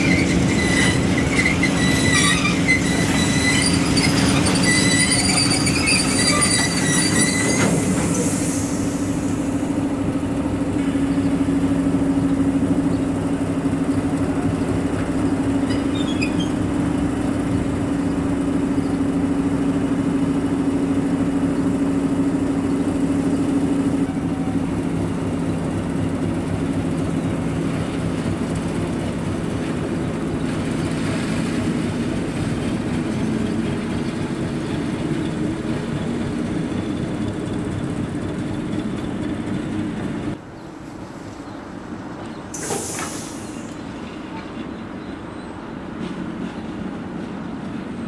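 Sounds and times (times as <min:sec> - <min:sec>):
locomotive diesel engine running: 0:00.0 - 0:48.0
wagons rumbling on rails: 0:00.0 - 0:48.0
brief hiss: 0:42.5 - 0:43.8.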